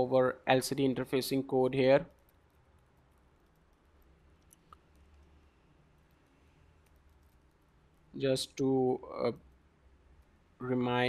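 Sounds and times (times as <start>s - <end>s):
keyboard typing: 2.0s - 8.1s.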